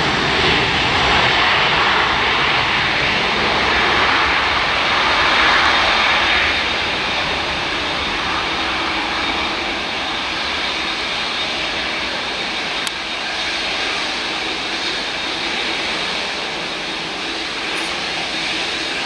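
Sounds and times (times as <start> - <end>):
jet engines at low thrust: 0.0 - 19.0.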